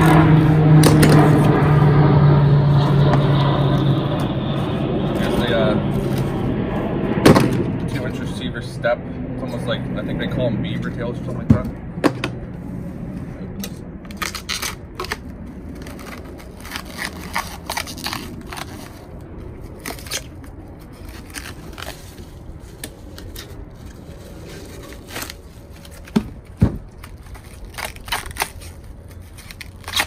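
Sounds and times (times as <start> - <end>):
packaging crinkling and tearing: 14.1 - 30.0.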